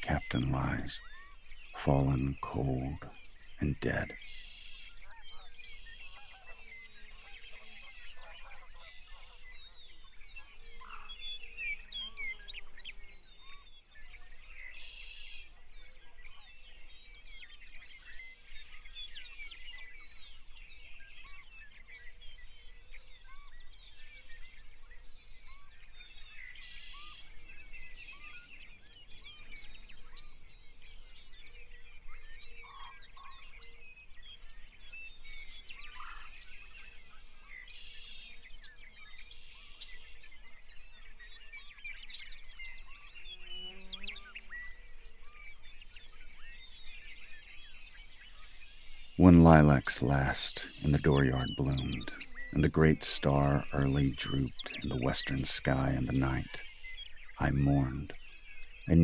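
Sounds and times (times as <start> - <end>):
birds chirping and trilling: 0.0 - 59.0
faint steady hiss: 39.2 - 59.0.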